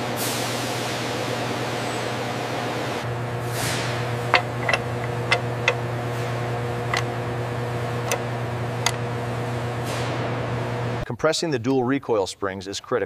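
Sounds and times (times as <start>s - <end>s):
low machine hum: 0.8s - 11.0s.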